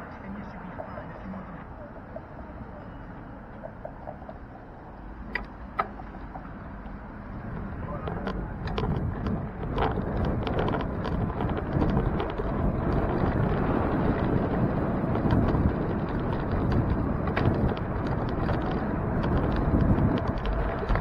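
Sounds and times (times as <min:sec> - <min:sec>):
tyres rumbling on pavement: 0:00.0 - 0:21.0
wind buffeting microphone: 0:00.0 - 0:21.0
small clicks and rattles: 0:08.0 - 0:21.0.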